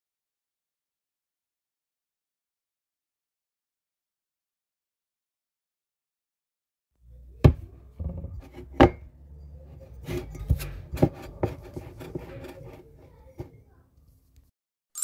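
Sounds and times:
hand mixing fries in batter: 9.7s - 14.2s.

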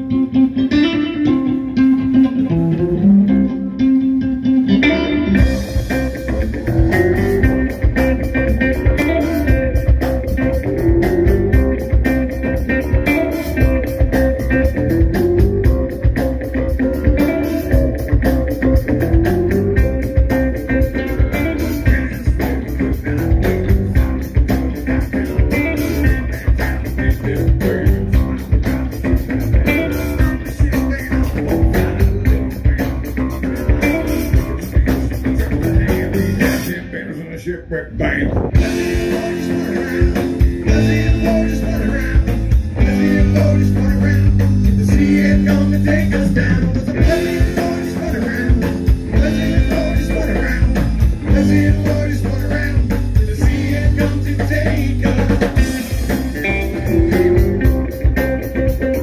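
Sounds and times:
rock band playing: 0.0s - 59.0s.

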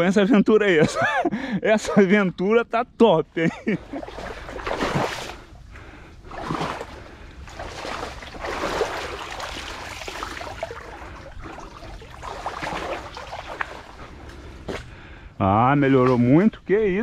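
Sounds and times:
people wading through muddy water: 3.4s - 15.3s.

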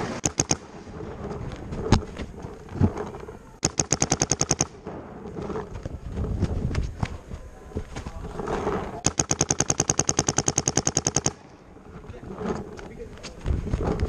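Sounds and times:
paintball markers firing: 0.2s - 0.7s, 3.6s - 5.9s, 9.0s - 11.6s
background popping: 0.2s - 14.0s.

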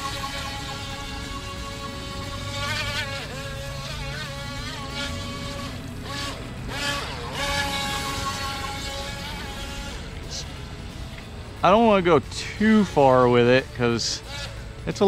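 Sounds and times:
electric motor high whine: 0.0s - 15.0s.

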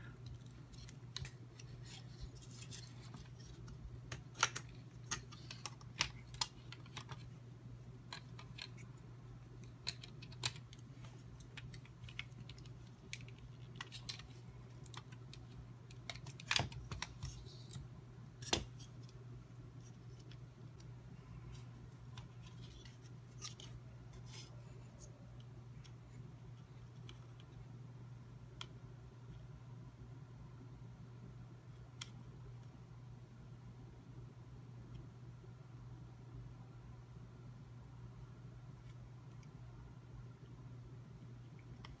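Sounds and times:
plastic parts clicking and tapping: 9.6s - 10.8s.

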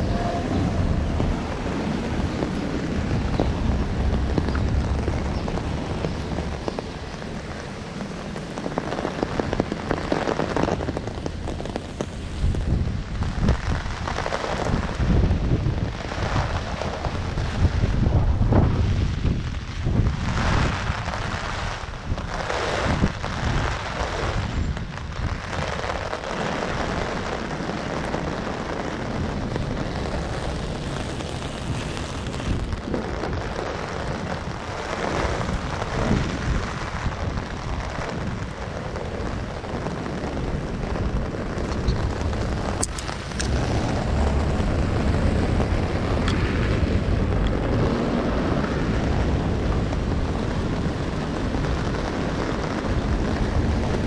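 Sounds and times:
heavy rain hiss: 0.0s - 54.0s
storm wind gusting on microphone: 0.0s - 54.0s.

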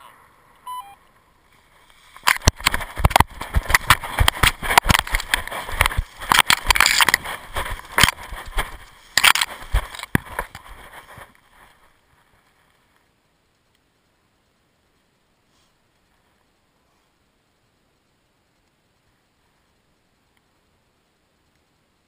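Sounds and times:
harness crackles and scraping: 1.5s - 13.1s.

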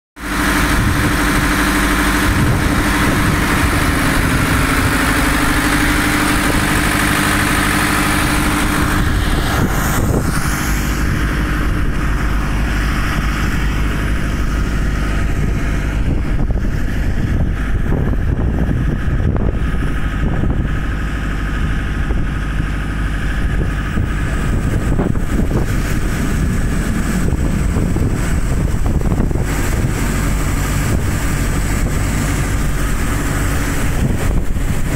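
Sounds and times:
diesel engine running: 0.2s - 34.9s.

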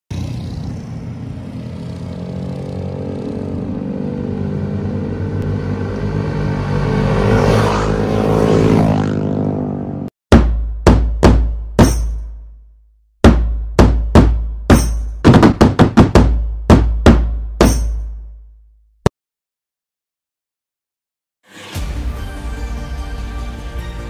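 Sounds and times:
motorcycles riding past: 0.1s - 10.1s.

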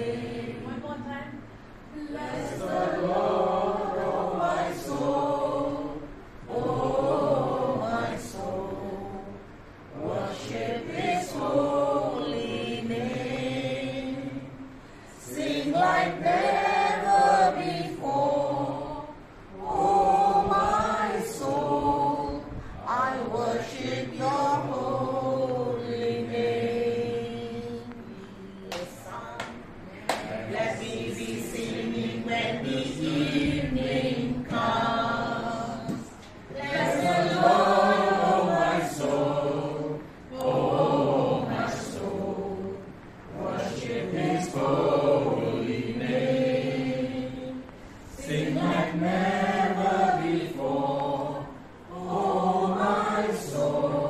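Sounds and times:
group of voices singing: 0.0s - 54.0s.

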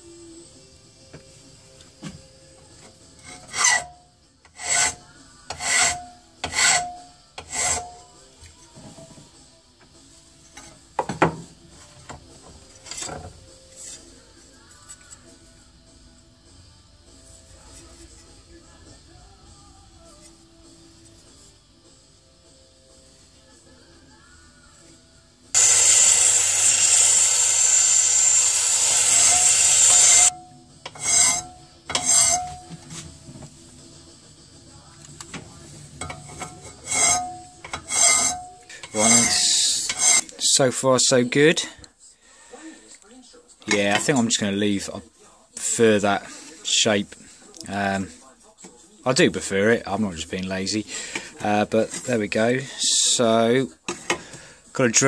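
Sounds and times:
file scraping metal: 3.1s - 8.1s, 25.6s - 33.0s, 36.0s - 40.5s
metal rasping: 3.1s - 8.1s, 25.6s - 33.0s, 36.0s - 40.4s.

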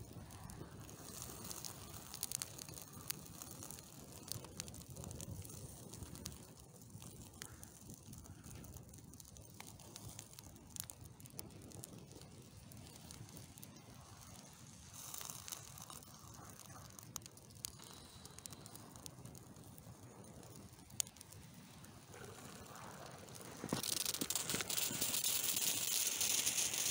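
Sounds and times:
burning cardboard crackling: 0.0s - 26.9s.

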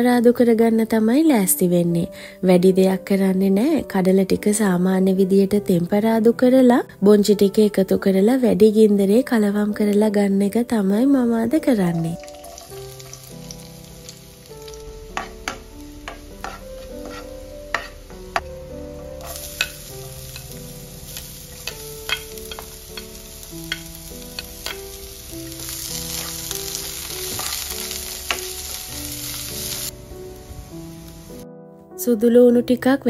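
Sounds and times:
food frying in hot oil: 12.2s - 18.2s, 19.2s - 31.4s
wooden spatula tapping and scraping: 15.1s - 18.5s.

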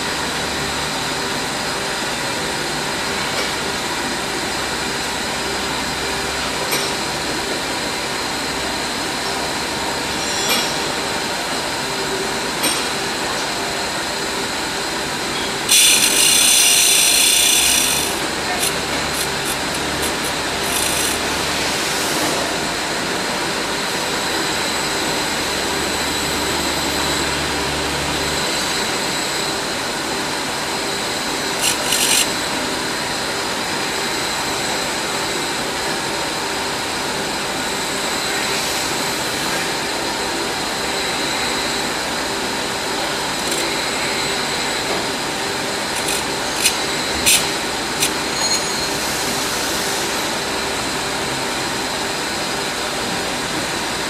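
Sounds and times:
grinding wheel whining: 15.4s - 21.6s, 31.3s - 32.6s, 45.8s - 48.7s
wheel rasping on steel: 15.6s - 21.5s, 31.5s - 32.3s, 45.9s - 48.6s
sharp metal scrapes: 15.7s - 21.4s, 31.5s - 32.3s, 45.9s - 49.0s.

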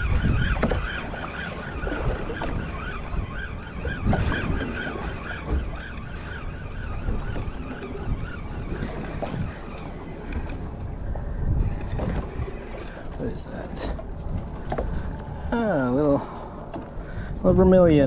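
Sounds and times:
wind buffeting microphone: 0.0s - 18.0s.

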